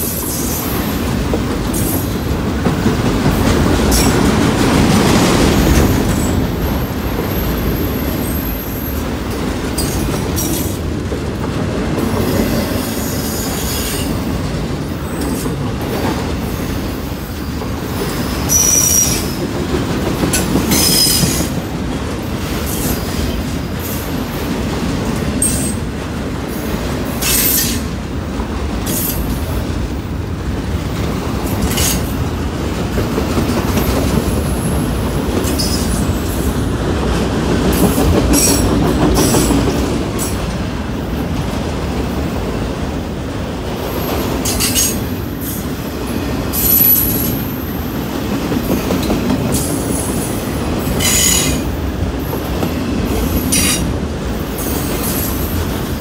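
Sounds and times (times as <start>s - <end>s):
train wheel squeals: 0.0s - 1.1s, 5.5s - 10.8s, 12.2s - 14.2s, 17.2s - 19.6s, 20.3s - 21.7s, 22.5s - 24.3s, 25.4s - 25.9s, 27.1s - 27.9s, 31.5s - 32.2s, 33.8s - 36.6s, 37.7s - 40.4s, 44.0s - 56.0s
train wheels rumbling on rail: 0.0s - 56.0s.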